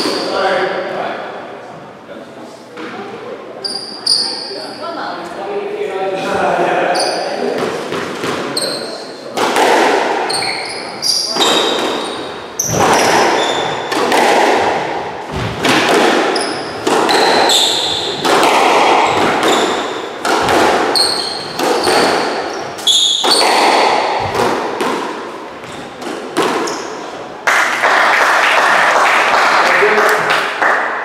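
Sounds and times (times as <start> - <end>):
shoes squeaking on wooden floor: 3.6 - 4.8, 10.2 - 14.0, 16.3 - 18.3, 19.0 - 24.5, 25.6 - 26.0, 26.6 - 27.2
squash ball hits echoing: 7.4 - 27.9.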